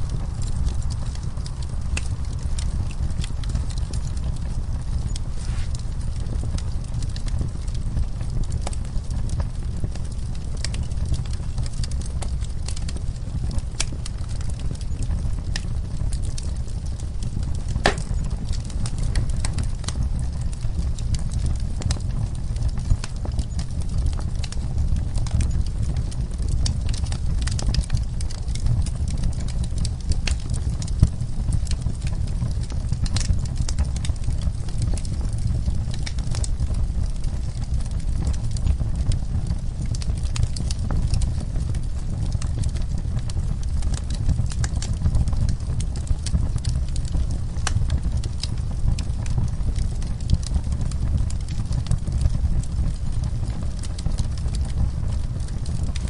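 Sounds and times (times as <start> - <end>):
fire crackling and popping: 0.0 - 56.0.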